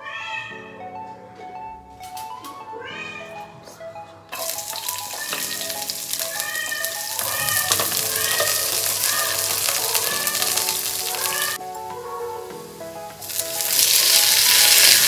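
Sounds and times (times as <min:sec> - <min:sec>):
background music: 0:00.0 - 0:15.0
garlic sizzling in hot oil: 0:04.4 - 0:11.6, 0:13.2 - 0:15.0
wooden spatula stirring: 0:04.4 - 0:11.6.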